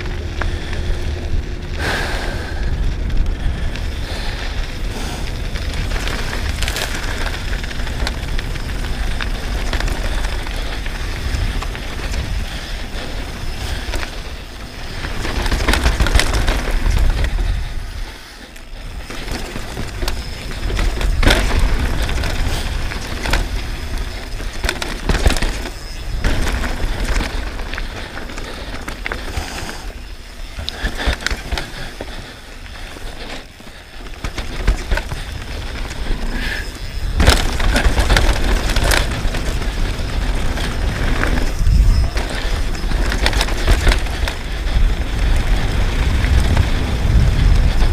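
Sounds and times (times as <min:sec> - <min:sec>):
bike tyres rolling over gravel: 0:00.0 - 0:47.9
wind buffeting microphone: 0:00.0 - 0:47.9
chain and suspension rattling: 0:02.3 - 0:47.9.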